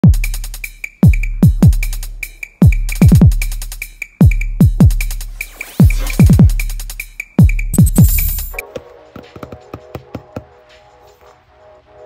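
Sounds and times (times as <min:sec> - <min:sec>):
deep kick drums: 0:00.0 - 0:00.4, 0:01.0 - 0:02.0, 0:02.6 - 0:03.5
ticking hi-hats: 0:00.0 - 0:08.6
electronic music: 0:07.8 - 0:08.6
short high blip: 0:07.8 - 0:08.6.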